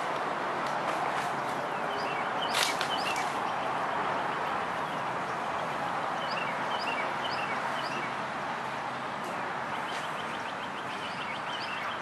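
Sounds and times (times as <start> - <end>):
steady background noise: 0.0 - 12.0
small birds chirping: 1.5 - 8.2, 9.7 - 12.0.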